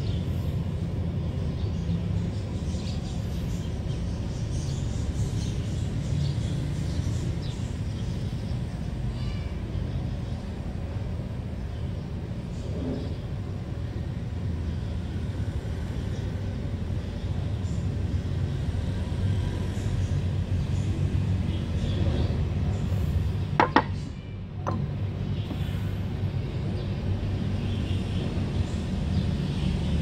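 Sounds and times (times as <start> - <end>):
part clicking on wooden board: 23.6 - 24.0.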